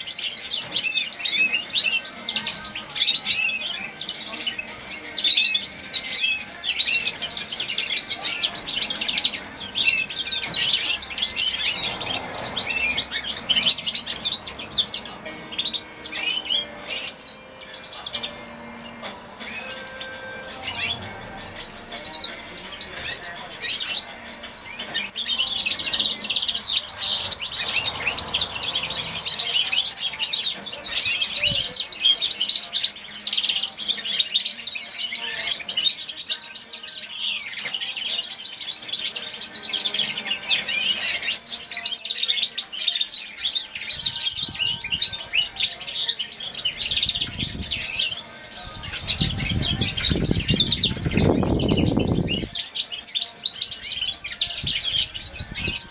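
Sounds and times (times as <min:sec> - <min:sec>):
finch singing rapid twittering: 0:00.0 - 0:55.9.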